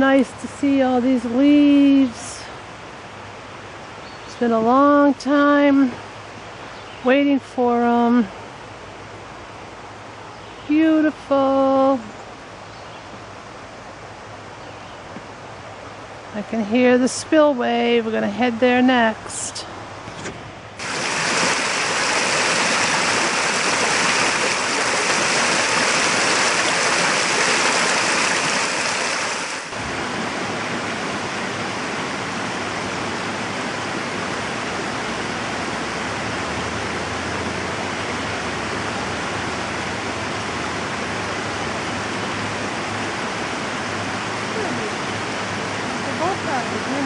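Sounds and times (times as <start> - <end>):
water flowing over spillway: 20.8 - 47.0.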